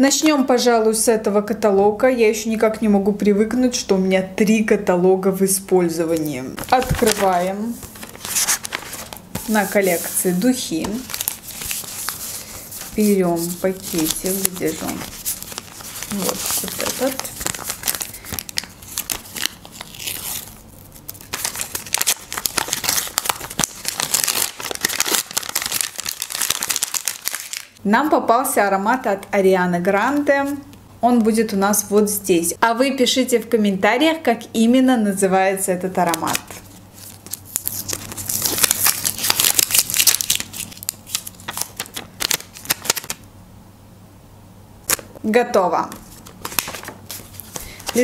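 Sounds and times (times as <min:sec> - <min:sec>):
paper crinkling and tearing: 0:06.1 - 0:27.8, 0:36.0 - 0:43.2, 0:45.9 - 0:48.0.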